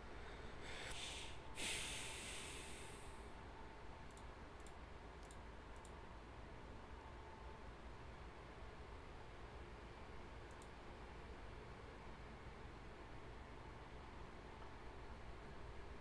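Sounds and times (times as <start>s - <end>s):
loud breath: 0.2s - 3.2s
soft computer mouse clicks: 4.0s - 6.0s, 10.5s - 10.8s.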